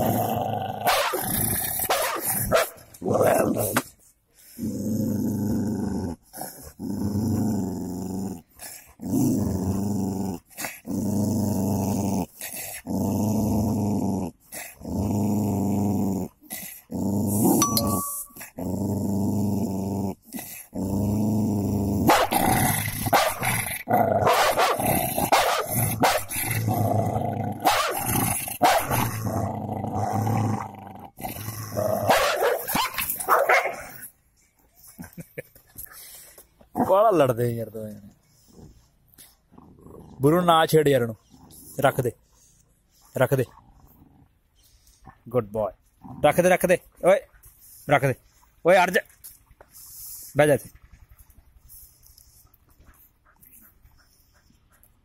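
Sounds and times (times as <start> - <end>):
dog growling: 0.0 - 3.8, 4.5 - 34.1, 35.0 - 44.4, 46.0 - 46.6
dogs fighting with snarls and barks: 0.0 - 55.0.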